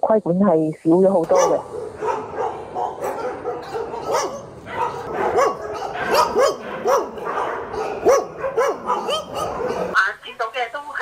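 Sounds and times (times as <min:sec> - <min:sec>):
dogs barking: 0:01.2 - 0:10.0
dogs yipping: 0:01.3 - 0:10.0.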